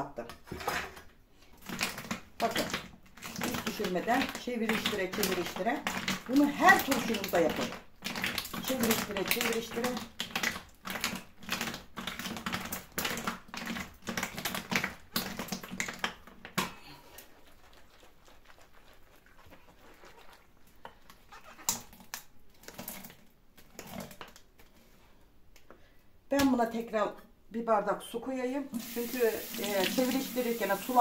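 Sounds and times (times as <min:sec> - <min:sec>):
vegetables knocking in a container: 0:01.6 - 0:16.8.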